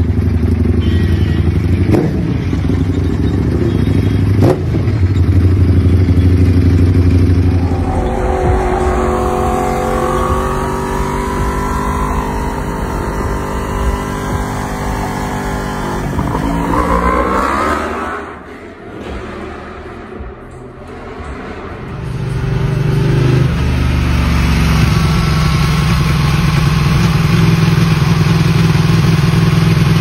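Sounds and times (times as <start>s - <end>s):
motorcycle engine revving: 1.6s - 20.2s, 21.9s - 30.0s
motorcycle engine rumbling: 2.3s - 17.3s.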